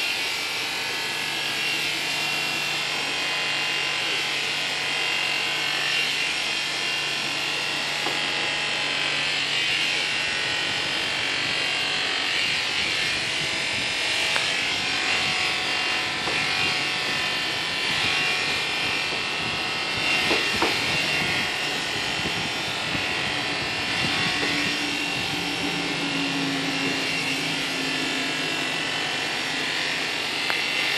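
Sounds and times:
electric clippers shearing fleece: 0.0 - 30.9.

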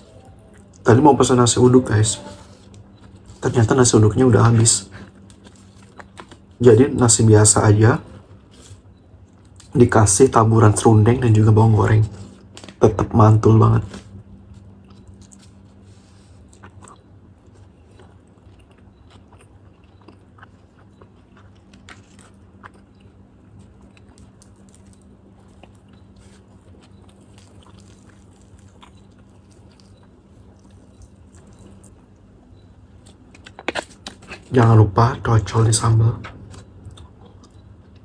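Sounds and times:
chewing crunches: 2.6 - 6.6, 13.8 - 34.7, 36.2 - 38.0.

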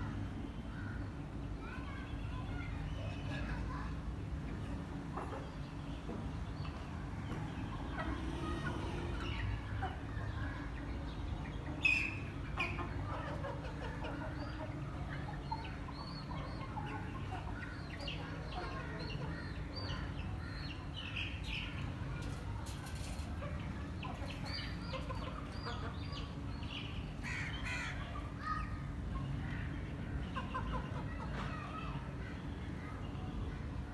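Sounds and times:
chickens clucking and chirping: 0.0 - 33.9.

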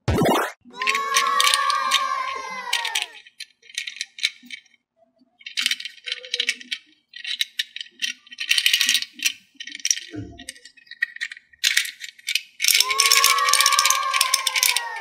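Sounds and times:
pitched tone sliding downward: 0.0 - 0.6
plastic toys rattling in metal tin: 0.8 - 4.8, 5.4 - 15.0.

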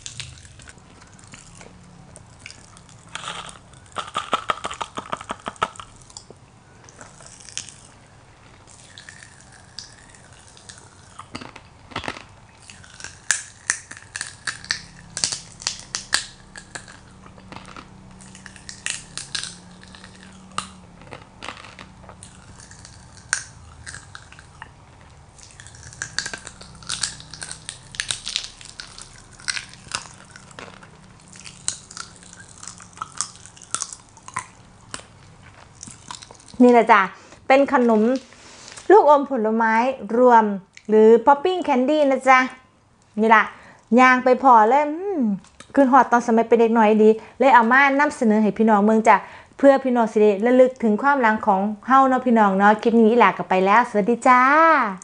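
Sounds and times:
popping candy crackling in mouth: 0.0 - 38.9.

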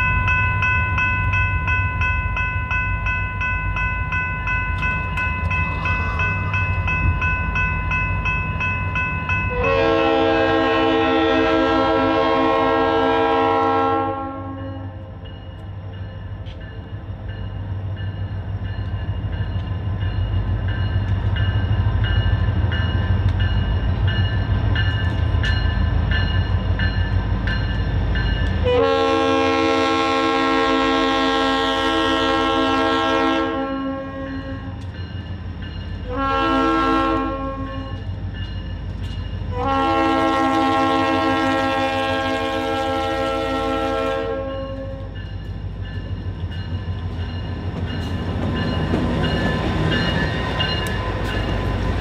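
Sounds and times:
crossing bell ringing: 0.0 - 52.0
locomotive air horn blasts: 9.5 - 15.0, 28.6 - 34.8, 36.0 - 38.0, 39.5 - 45.1
heavy low locomotive rumble: 42.8 - 52.0.

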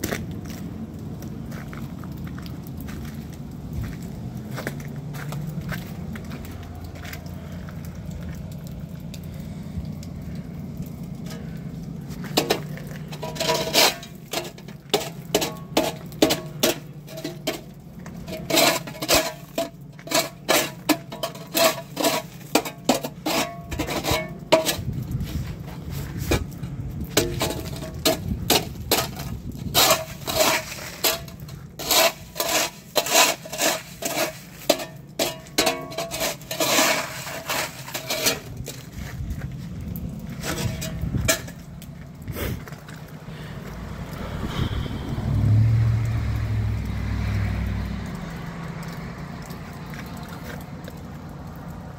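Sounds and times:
shovel scraping ice on concrete: 12.1 - 39.2, 40.3 - 41.7.

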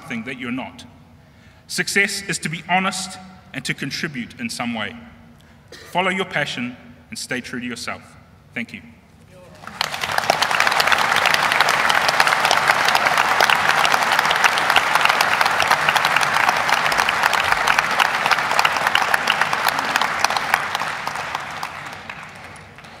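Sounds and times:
audience applauding: 9.5 - 23.0.

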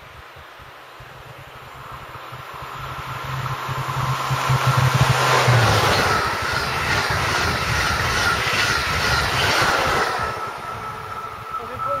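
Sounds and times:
low hum of power car: 0.6 - 8.1
train coaches rushing past: 1.7 - 12.0
rhythmic beat of train wheels: 2.2 - 12.0.

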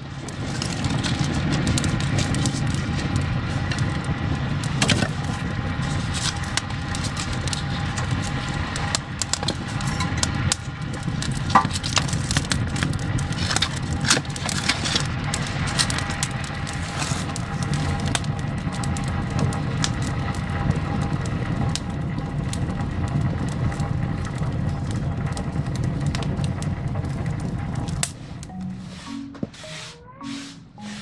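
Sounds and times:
wood crackling and popping: 0.0 - 29.6
low rumble of fire: 0.0 - 30.8.

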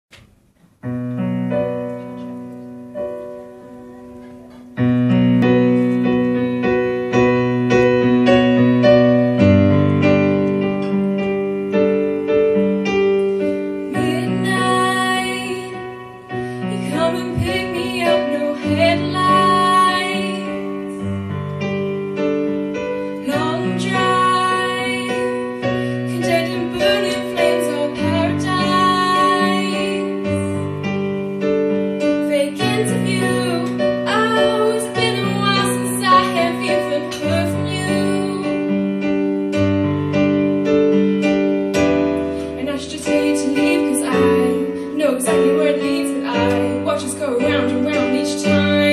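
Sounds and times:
piano chords: 0.1 - 48.9
woman singing with vibrato: 13.9 - 20.9, 23.2 - 30.7, 32.2 - 38.7, 42.6 - 48.9.

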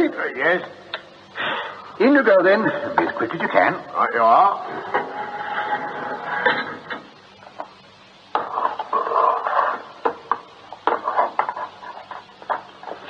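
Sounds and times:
hard objects clattering and clicking: 8.4 - 13.0.

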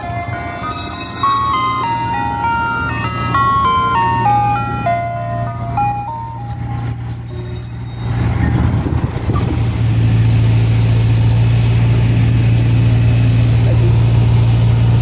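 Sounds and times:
ice cream truck chime melody: 0.0 - 7.2
truck engine humming: 0.0 - 15.0.

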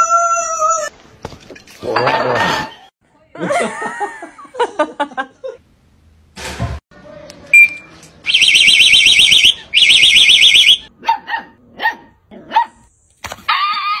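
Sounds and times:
short beep: 7.5 - 7.9
warbling car alarm siren: 8.3 - 10.9
dog barking: 11.0 - 12.8.

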